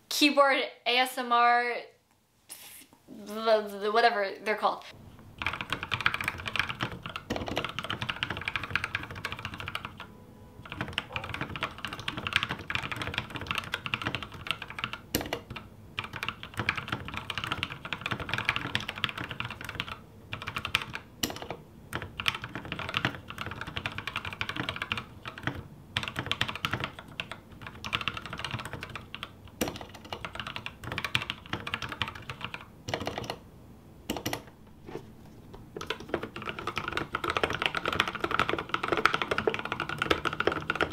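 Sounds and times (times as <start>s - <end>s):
mechanical keyboard typing: 5.4s - 33.4s, 34.1s - 34.6s, 35.7s - 40.9s.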